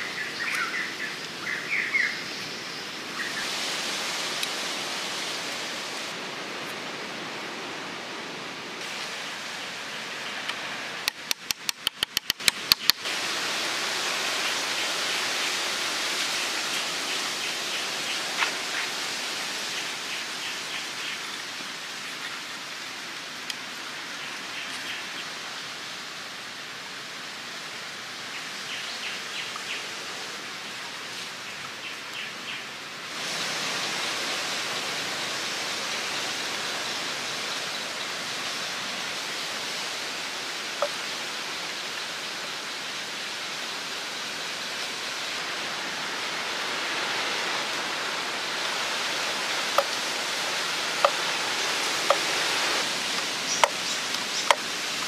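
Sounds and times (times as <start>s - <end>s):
outdoor background hiss: 0.0s - 55.0s.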